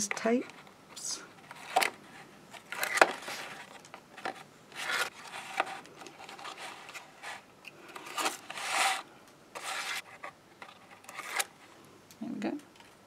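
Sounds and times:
stiff card rustling and scraping: 1.3 - 11.6.

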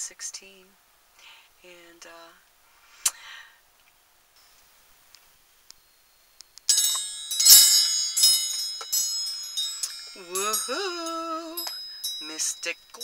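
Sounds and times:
chimes ringing: 5.7 - 13.0.

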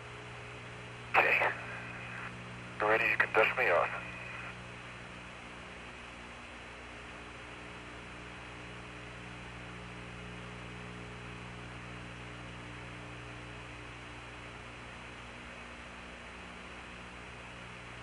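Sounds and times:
electrical hum: 0.0 - 18.0
radio background hiss: 0.9 - 13.1.

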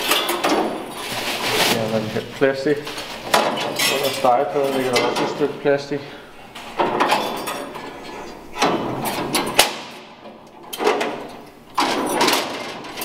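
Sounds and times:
plastic film rustling: 0.0 - 5.5
metal grates scraping: 2.9 - 5.5.

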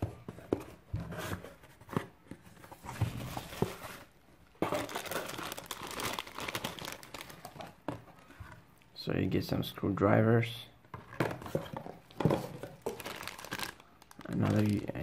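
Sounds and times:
bubble wrap and plastic bag crinkling: 4.5 - 7.8, 12.4 - 15.0.

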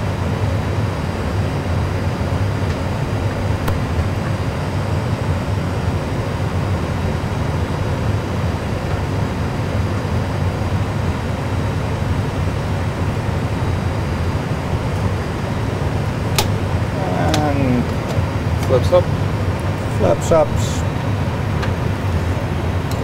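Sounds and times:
aircraft engine rumble: 0.0 - 23.0
sharp click: 16.4 - 16.6.

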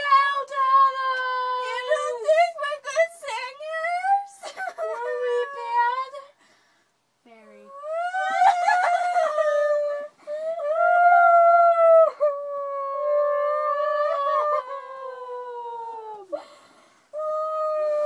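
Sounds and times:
girl howling: 3.7 - 6.2, 7.7 - 16.4, 17.2 - 18.0.

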